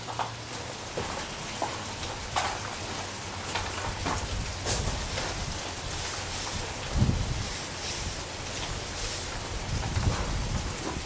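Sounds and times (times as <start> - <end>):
duster brushing and tapping siding: 3.6 - 11.0.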